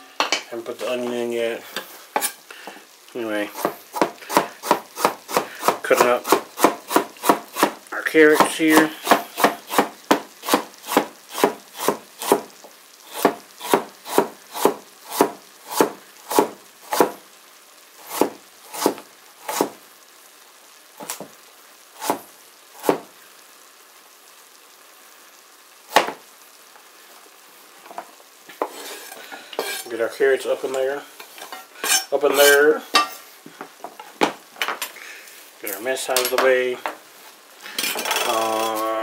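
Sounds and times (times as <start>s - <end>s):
knife chopping on plastic board: 9.1s - 10.2s.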